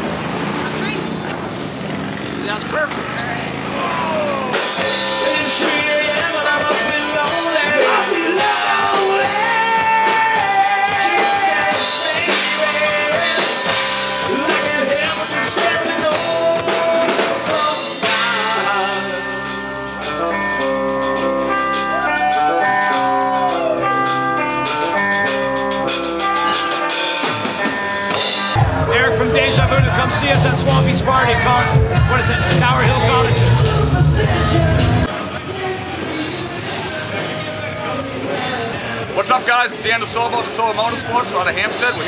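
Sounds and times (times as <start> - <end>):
man singing: 3.8 - 20.4, 28.6 - 35.7
rock band playing: 3.9 - 42.0.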